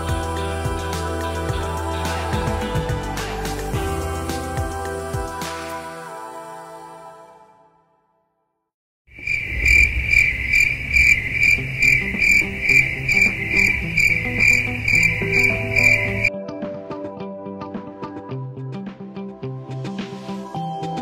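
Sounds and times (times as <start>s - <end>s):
crickets chirping: 9.1s - 16.3s.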